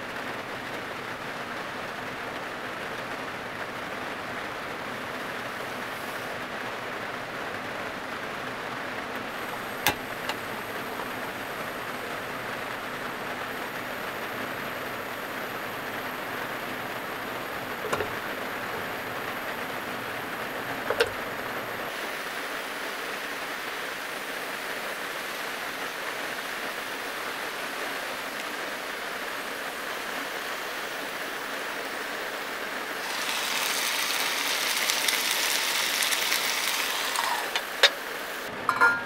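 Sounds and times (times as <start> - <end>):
heavy rain on a car roof: 0.0 - 38.5
steam hissing from a pan: 4.9 - 6.6, 9.2 - 38.8.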